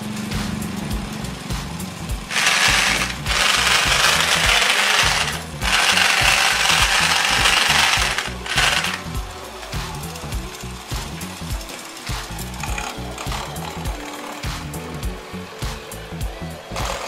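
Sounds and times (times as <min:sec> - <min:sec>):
electric drill running: 0:02.3 - 0:09.2, 0:16.8 - 0:17.0.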